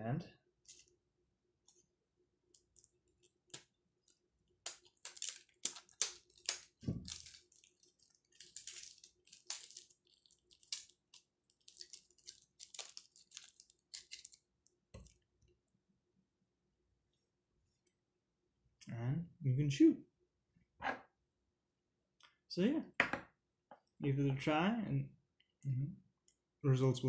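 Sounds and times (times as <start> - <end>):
wax paper crinkling: 2.5 - 15.2.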